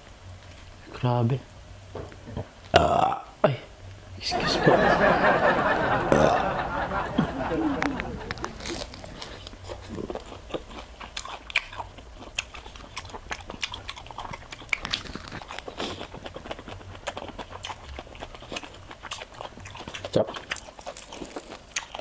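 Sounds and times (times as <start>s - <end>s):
person crunching fried food: 8.3s - 22.0s.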